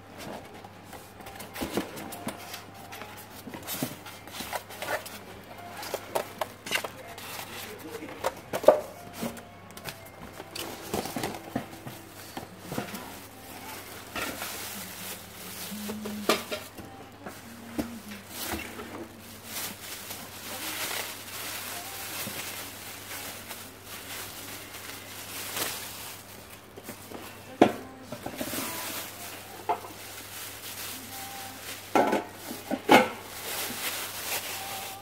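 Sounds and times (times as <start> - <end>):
plastic wrapping crinkling: 1.2 - 35.0.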